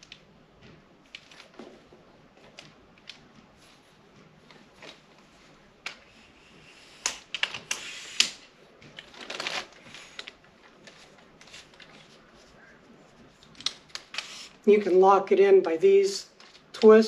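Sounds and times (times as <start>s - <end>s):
tripod sliding rasp: 6.5s - 8.4s, 14.1s - 14.6s
tripod parts clicking: 7.0s - 12.1s, 13.4s - 14.6s.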